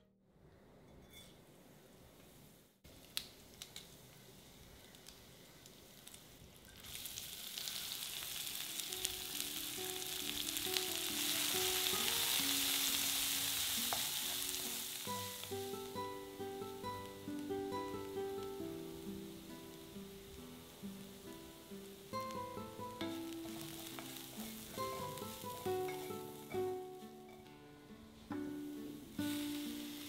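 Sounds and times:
food sizzling in hot oil: 4.4 - 27.4, 28.4 - 30.0
soft plucked background music: 8.6 - 30.0.

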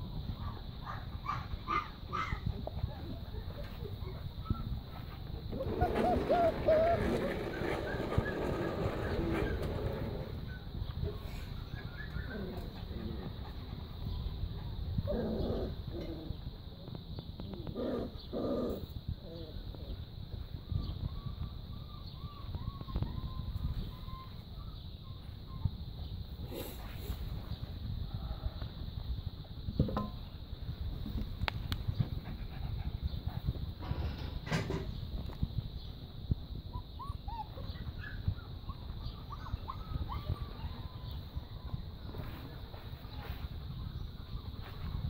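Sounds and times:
wind buffeting microphone: 0.0 - 45.0
puppies squeaking and whimpering: 5.5 - 10.6, 11.5 - 13.2, 36.7 - 41.2.

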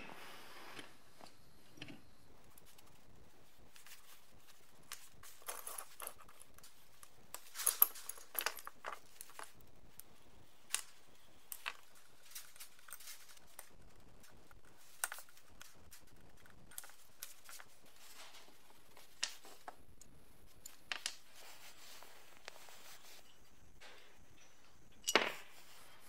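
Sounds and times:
small metal parts clinking: 4.9 - 9.6, 23.8 - 26.0.

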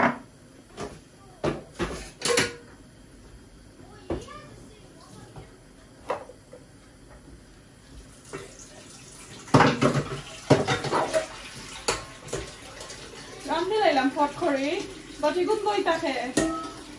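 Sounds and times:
tap water splashing into sink: 8.3 - 15.1, 15.9 - 16.9
metal colander clattering: 9.5 - 12.8, 15.2 - 16.9.

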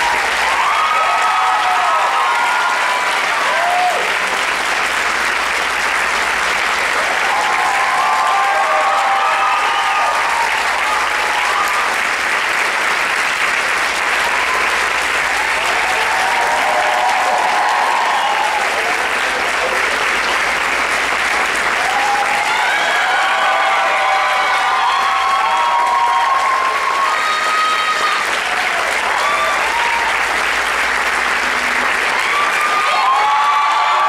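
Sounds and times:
audience clapping: 0.0 - 34.0
crowd cheering: 0.0 - 34.0.

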